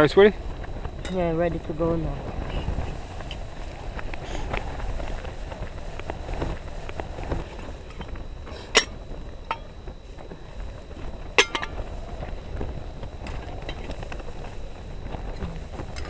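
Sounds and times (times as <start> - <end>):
low wind rumble: 0.0 - 16.0
metal cookware knocking: 11.4 - 11.8.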